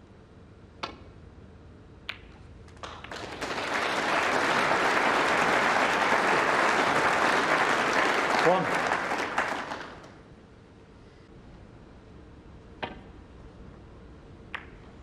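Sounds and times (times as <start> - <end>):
snooker balls clicking: 0.8 - 1.1, 2.0 - 3.1, 14.5 - 15.0
audience applause: 2.8 - 10.2.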